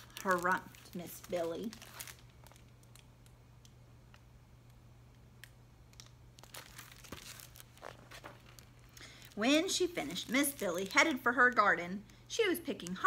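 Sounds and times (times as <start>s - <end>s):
low room hum: 0.0s - 13.0s
book pages rustling and clicking: 6.4s - 9.0s.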